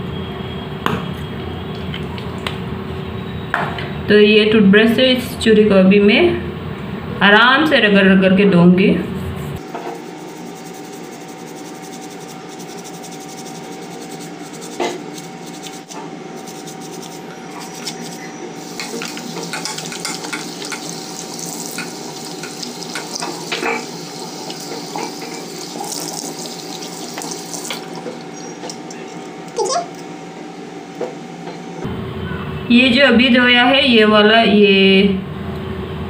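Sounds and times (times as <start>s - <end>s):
toothbrush scrubbing metal: 9.6s - 29.3s
tap water running into basin: 10.4s - 29.0s.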